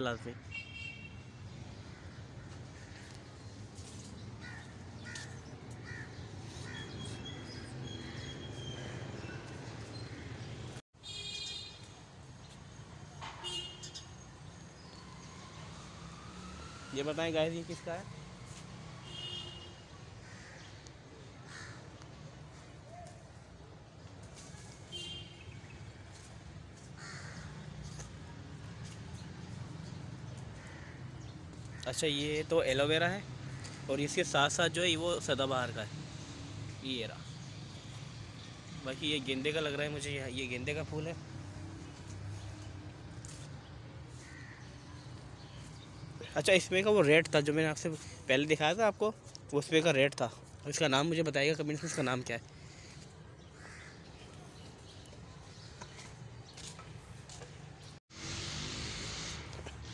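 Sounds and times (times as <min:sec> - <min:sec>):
birds calling: 0:00.0 - 0:11.7, 0:51.6 - 0:58.0
crows cawing: 0:01.8 - 0:03.5, 0:04.4 - 0:09.4, 0:20.2 - 0:22.7, 0:26.8 - 0:28.1, 0:30.3 - 0:32.0, 0:33.4 - 0:33.9, 0:44.1 - 0:45.5, 0:51.8 - 0:54.6.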